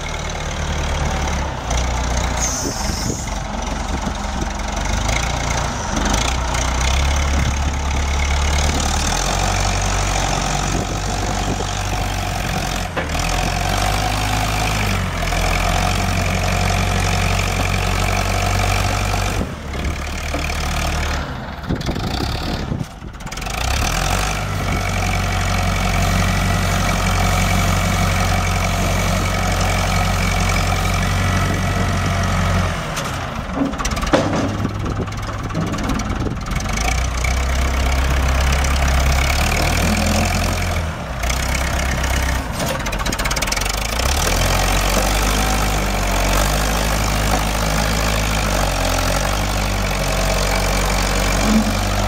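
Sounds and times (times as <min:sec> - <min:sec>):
tractor diesel engine running: 0:00.0 - 0:52.0.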